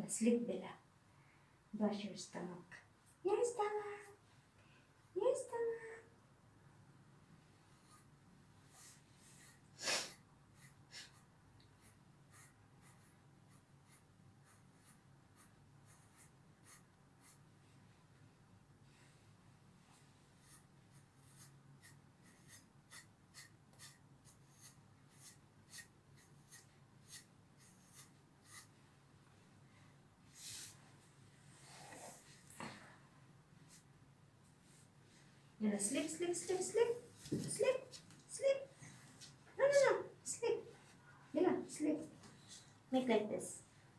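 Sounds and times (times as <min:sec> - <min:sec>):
brush strokes through dog fur: 0:30.3 - 0:30.8.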